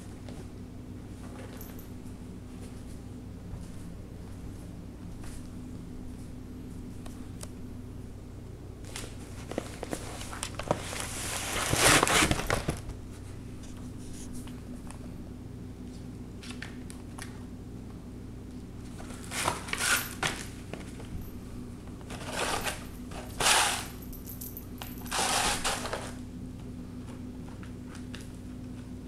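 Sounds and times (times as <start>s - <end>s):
drink carton crinkling: 8.9s - 12.9s, 19.0s - 21.1s, 22.0s - 23.7s, 25.1s - 26.2s.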